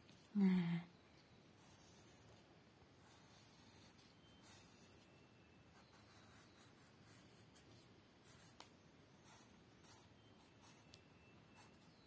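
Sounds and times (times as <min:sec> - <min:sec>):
pen scratching on paper: 0:01.6 - 0:02.4, 0:03.0 - 0:05.1, 0:05.7 - 0:12.0.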